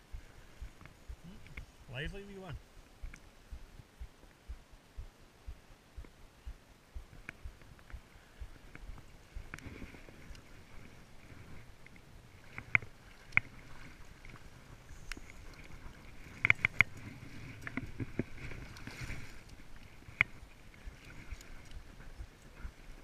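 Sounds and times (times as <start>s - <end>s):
river water sloshing and splashing: 7.5s - 23.0s.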